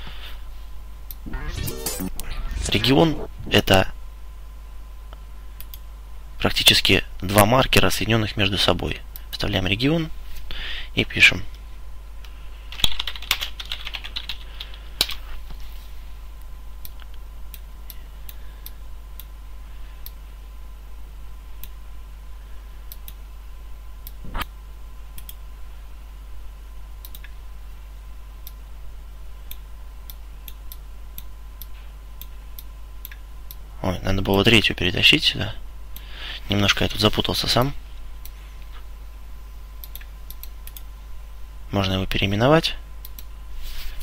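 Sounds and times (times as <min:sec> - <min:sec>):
low electrical hum: 0:00.0 - 0:44.0
computer keyboard typing: 0:12.7 - 0:14.8.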